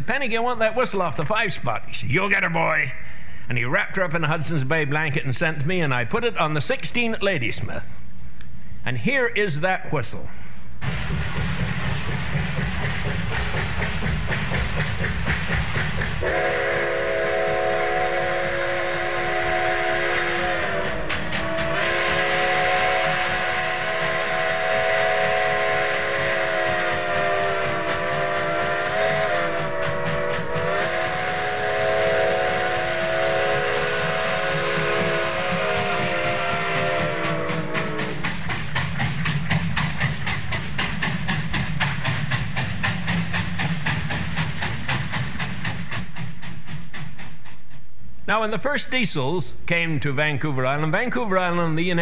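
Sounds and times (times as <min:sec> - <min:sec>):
train rumble: 0:10.8 - 0:48.8
steam locomotive whistle: 0:12.6 - 0:39.9.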